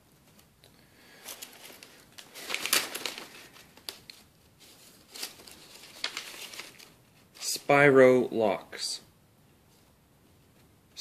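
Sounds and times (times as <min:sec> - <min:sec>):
paper sheets rustling and crinkling: 0:01.1 - 0:07.6.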